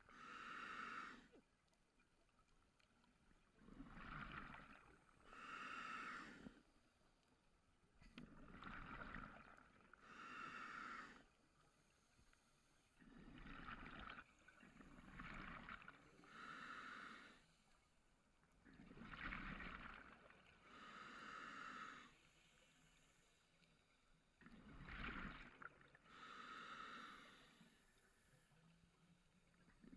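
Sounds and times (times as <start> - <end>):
exhaled bubbles underwater: 3.5 - 5.2, 8.2 - 9.9, 13.0 - 16.4, 18.6 - 20.5, 24.4 - 26.2.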